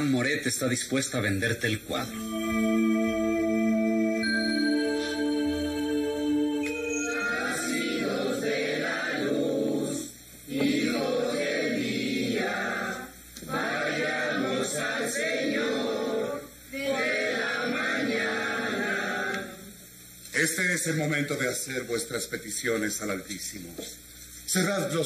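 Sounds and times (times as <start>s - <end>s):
held musical tone: 2.0s - 9.2s
choir chanting a hymn: 2.1s - 19.8s.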